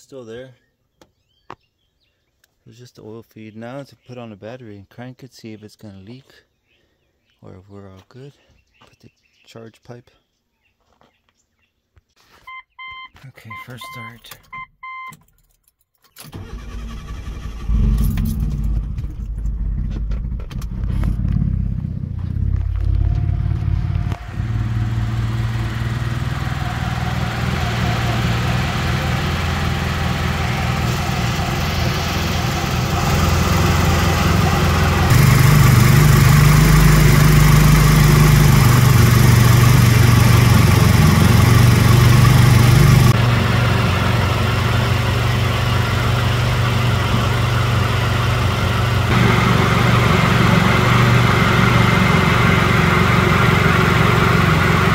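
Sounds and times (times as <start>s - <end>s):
starter cranking engine: 16.2s - 21.3s, 27.2s - 43.2s
car engine running: 16.4s - 54.9s.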